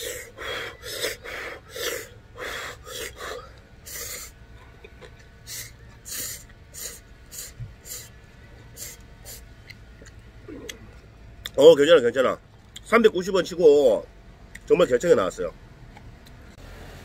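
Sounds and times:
man puffing breath: 0:00.0 - 0:04.4.

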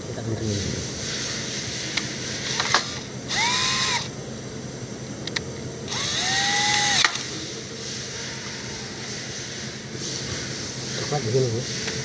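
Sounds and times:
cordless drill whine: 0:02.4 - 0:04.1, 0:05.9 - 0:07.3.

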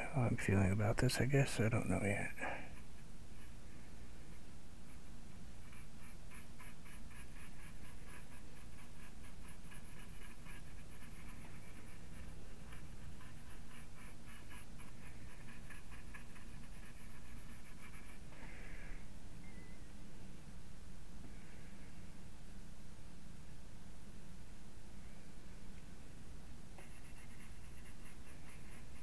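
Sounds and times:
brush dabbing paint: 0:04.8 - 0:18.5, 0:26.8 - 0:29.0.

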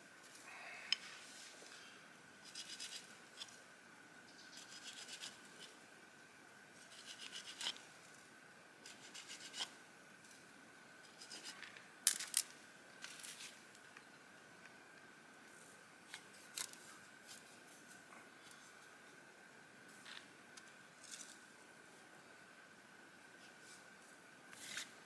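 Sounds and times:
knife scraping wood: 0:06.8 - 0:07.8.

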